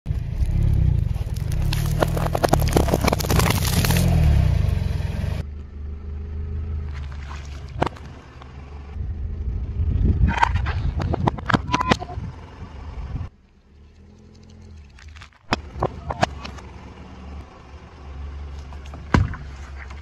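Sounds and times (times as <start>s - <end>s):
tyre rolling on gritty asphalt: 0.1s - 5.4s
sharp cracks: 0.3s - 4.7s
packaging crushed crackling: 0.4s - 4.2s.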